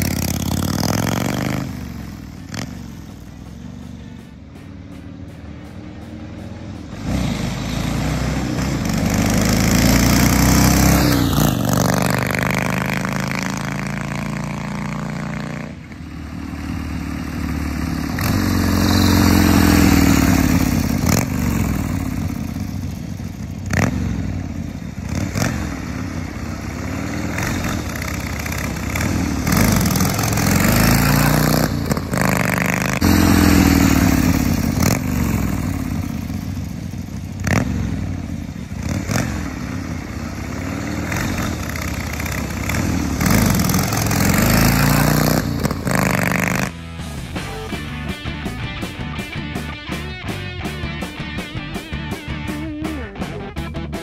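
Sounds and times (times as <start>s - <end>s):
motorcycle accelerating past: 0.0s - 46.9s.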